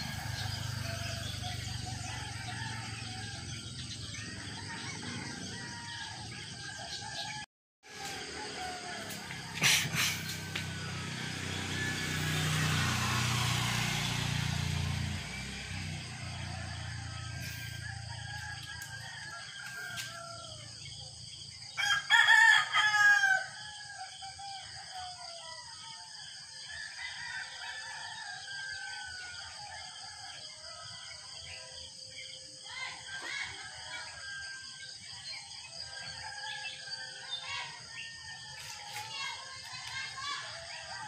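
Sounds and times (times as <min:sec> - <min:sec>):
distant roosters crowing: 0:00.0 - 0:41.0
rooster crowing loudly: 0:16.3 - 0:20.7, 0:21.8 - 0:25.2.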